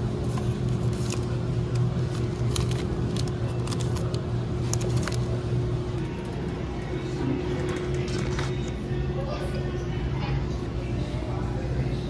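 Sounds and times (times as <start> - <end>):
grocery store ambience hum: 0.0 - 12.0
packaging crinkling and clicking: 0.8 - 5.4.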